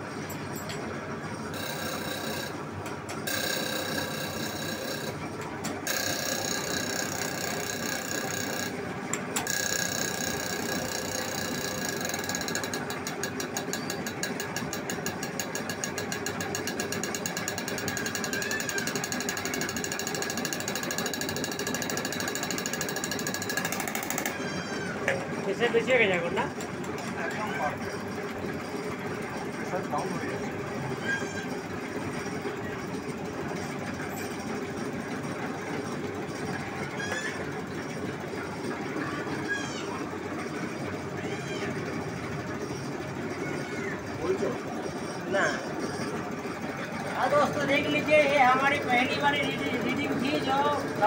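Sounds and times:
high-pressure pump whine: 0.0 - 26.5
rapid injector ticking: 3.2 - 5.2, 5.8 - 24.4.

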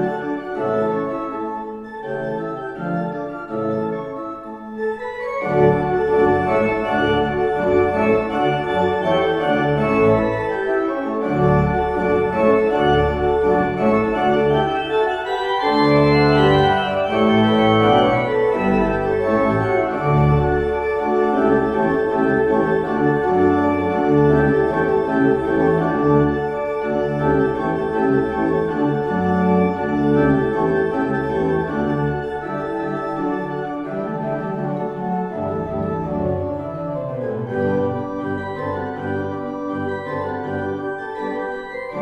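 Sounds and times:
pipe organ playing chords: 0.0 - 42.0.

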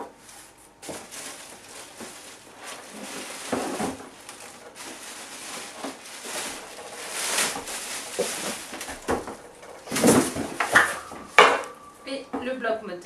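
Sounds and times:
cardboard box rustling: 0.8 - 11.2.

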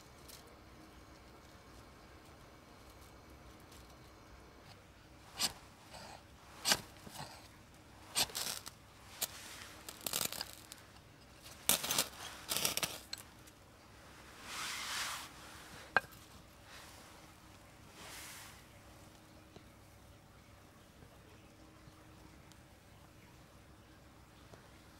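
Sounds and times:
wood splintering: 8.1 - 10.8.

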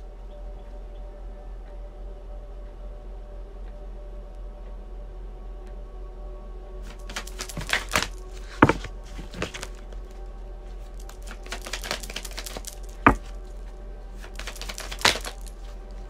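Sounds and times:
cards shuffling and slapping: 6.9 - 10.1, 10.8 - 13.4, 14.2 - 15.9.

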